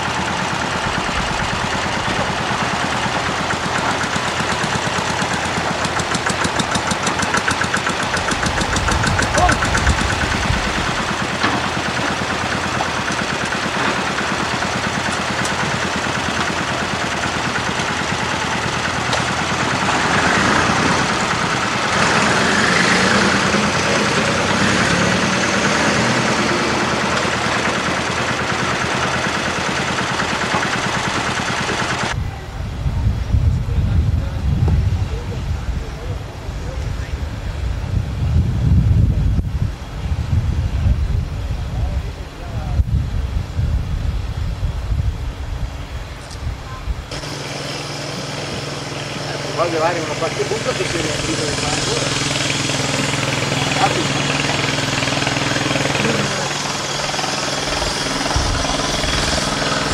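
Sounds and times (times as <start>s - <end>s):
tractor engine idling: 0.0s - 32.5s, 47.0s - 59.9s.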